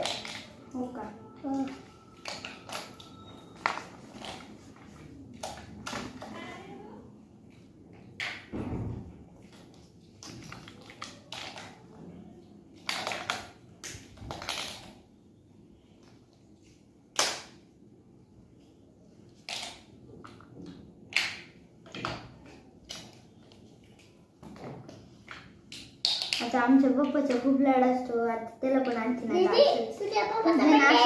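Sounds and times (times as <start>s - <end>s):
plastic blocks clattering and clicking: 0.0s - 0.5s, 9.7s - 11.8s, 12.7s - 15.0s, 19.3s - 24.6s.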